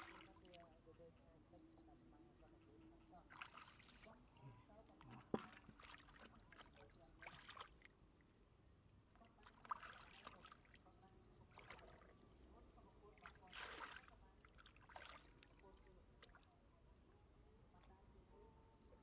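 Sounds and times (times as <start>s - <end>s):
hands splashing in water: 3.3s - 4.1s, 5.1s - 7.9s, 9.4s - 10.7s, 13.2s - 15.5s.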